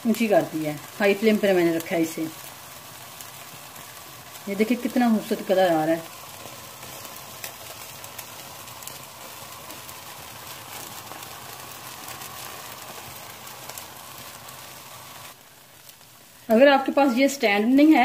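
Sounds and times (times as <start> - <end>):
faint crackles: 0.0 - 18.0
meat sizzling over burner: 0.0 - 18.0.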